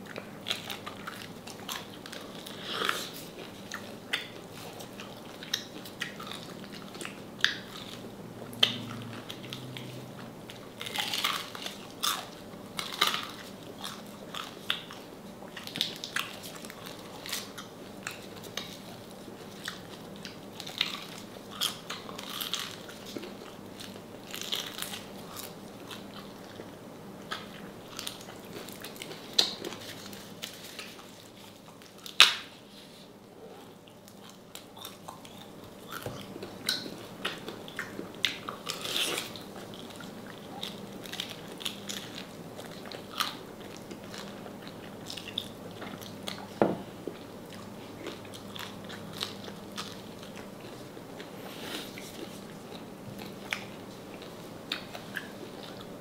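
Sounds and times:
crunching and chewing crispy food: 0.0 - 56.0.

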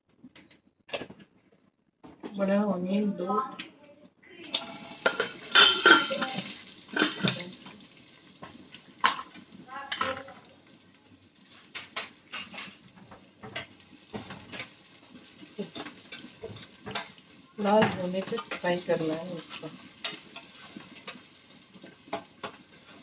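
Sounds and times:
onions sizzling in hot oil: 4.4 - 23.0
spoon scraping metal pot: 4.5 - 7.5, 17.8 - 23.0.

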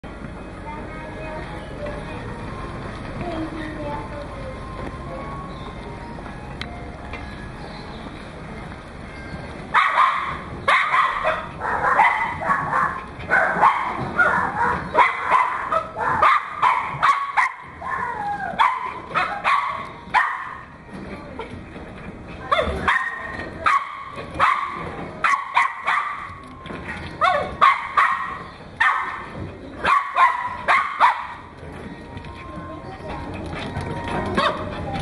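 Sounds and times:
dog yipping and barking: 9.7 - 20.6, 22.5 - 26.4, 27.2 - 31.5.

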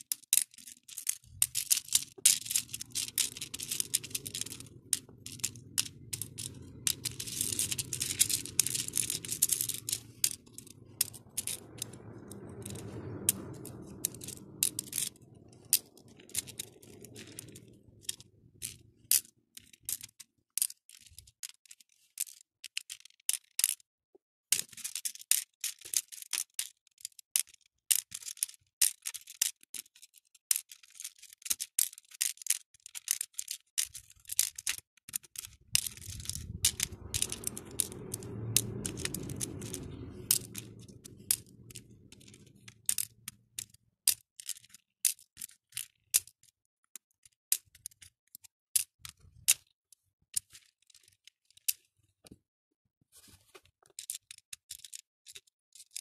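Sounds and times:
plastic beads clicking and rattling: 0.0 - 23.8, 24.5 - 49.7, 50.3 - 51.9, 53.9 - 56.0
low rumble: 1.2 - 19.0, 35.6 - 43.6.

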